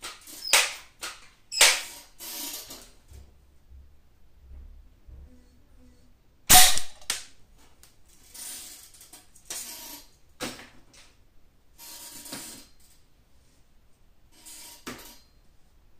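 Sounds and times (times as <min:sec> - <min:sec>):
air rifle shot crack: 0:06.5 - 0:07.0.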